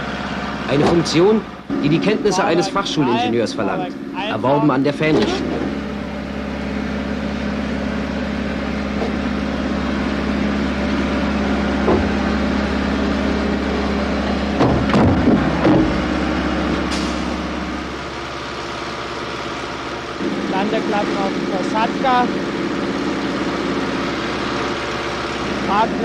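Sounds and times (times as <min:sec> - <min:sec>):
steady machine drone: 0:00.0 - 0:26.0
metallic knocks and clanks: 0:14.6 - 0:16.1.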